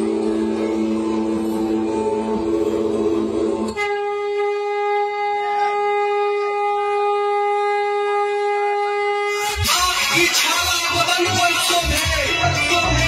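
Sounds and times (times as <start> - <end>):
conch shell blown: 0.0 - 9.9.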